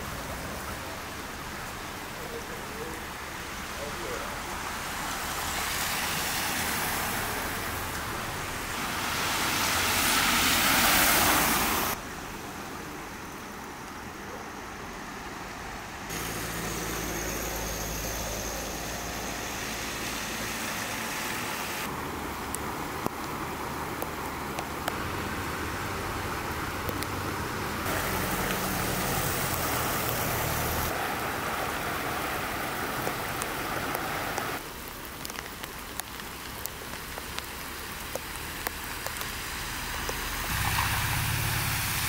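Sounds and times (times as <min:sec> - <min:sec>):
car tyres hissing on wet road: 0:00.0 - 0:13.6, 0:16.1 - 0:26.6, 0:27.8 - 0:42.0
street traffic noise: 0:00.0 - 0:42.0.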